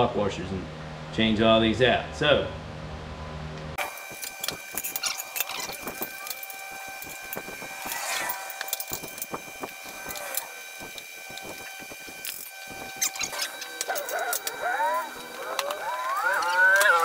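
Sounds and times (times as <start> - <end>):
metal parts clinking and rattling: 3.9 - 17.0.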